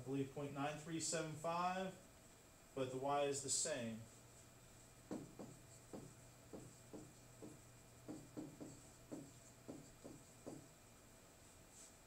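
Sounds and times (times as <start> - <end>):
pen writing taps and scratches: 5.1 - 10.7.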